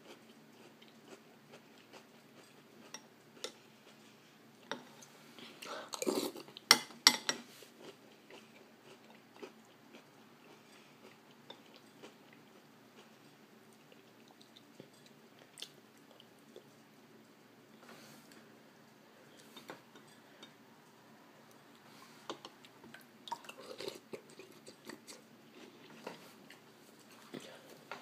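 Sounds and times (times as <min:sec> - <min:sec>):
person chewing cereal: 0:00.0 - 0:04.4, 0:07.6 - 0:17.0, 0:19.3 - 0:27.5.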